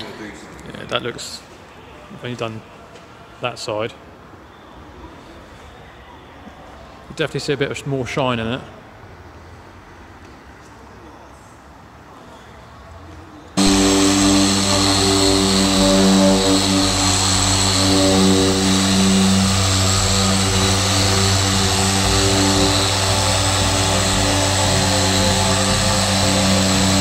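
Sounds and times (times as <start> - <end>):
car polisher motor drone: 13.6 - 27.0.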